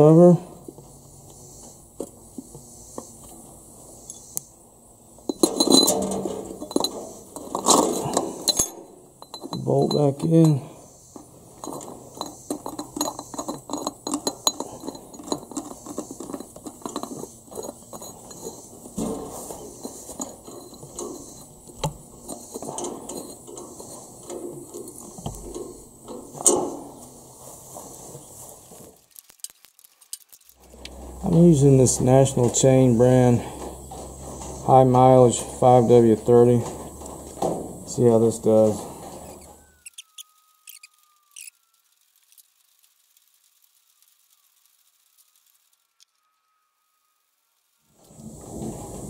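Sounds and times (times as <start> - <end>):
metal clinking and scraping: 5.2 - 41.6, 48.0 - 49.0.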